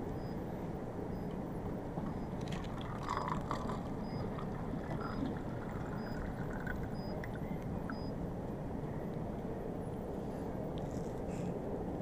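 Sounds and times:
ship engine rumble: 0:00.0 - 0:12.0
liquid pouring into paper cup: 0:02.4 - 0:06.9.

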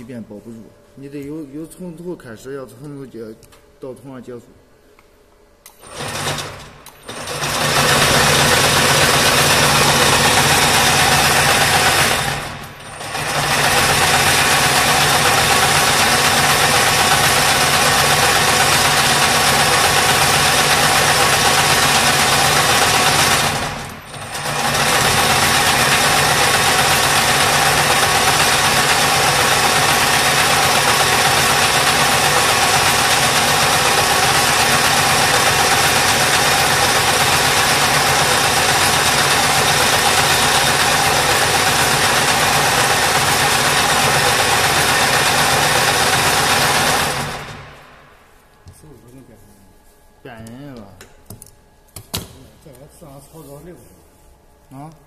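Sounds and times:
braiding machine running: 0:05.7 - 0:48.3.

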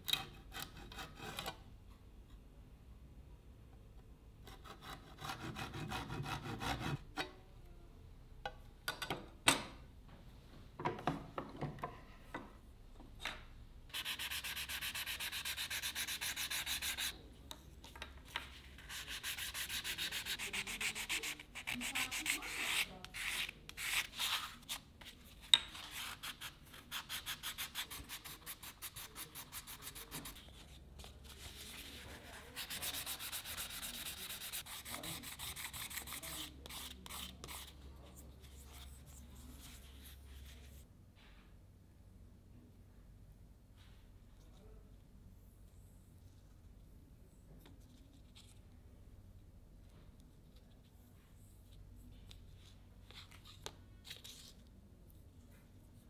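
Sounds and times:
sandpaper rubbing on wood: 0:13.9 - 0:17.1, 0:18.9 - 0:24.5, 0:31.7 - 0:37.6.

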